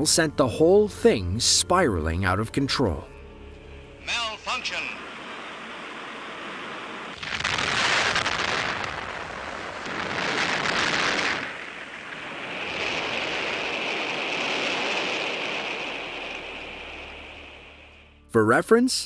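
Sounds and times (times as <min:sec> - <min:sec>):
rocket exploding rushing hiss: 0:05.0 - 0:18.2.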